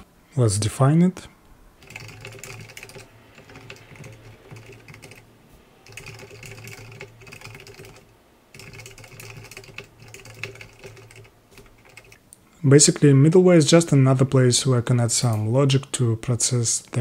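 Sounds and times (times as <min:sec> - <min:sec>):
typing on computer keyboard: 0:01.8 - 0:12.2.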